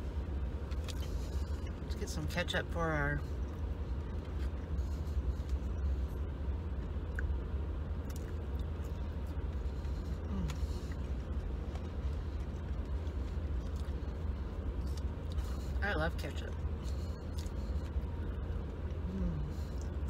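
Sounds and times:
ferry low rumble: 0.0s - 20.0s.

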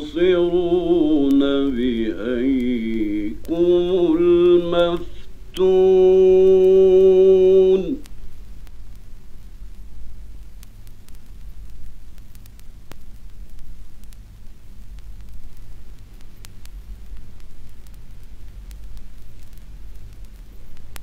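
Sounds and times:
clicks and crackles: 0.0s - 21.0s
recording hiss and hum: 0.0s - 21.0s.

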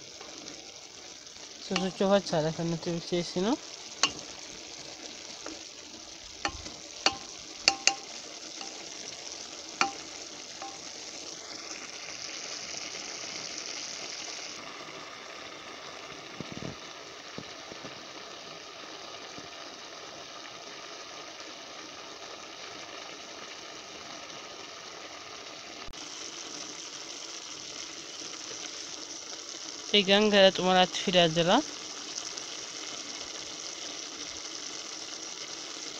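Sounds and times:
vegetables sizzling in a pot: 0.0s - 35.9s
wooden spoon clacking against pot: 4.0s - 4.3s, 6.4s - 8.8s, 9.8s - 10.9s.

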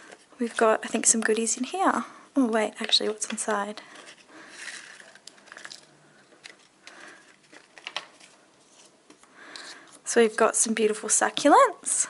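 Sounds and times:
paper rustling: 2.8s - 10.5s.

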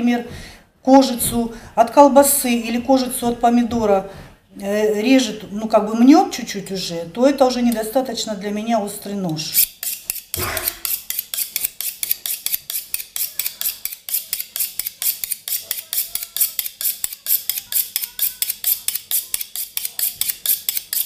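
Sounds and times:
knife blades scraping together: 9.5s - 21.0s.

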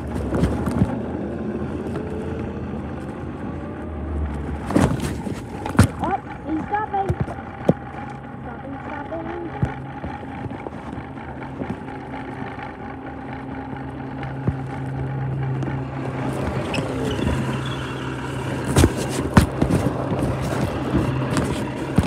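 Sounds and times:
truck engine humming: 0.0s - 22.0s
device rubbing against clothing: 16.2s - 22.0s.

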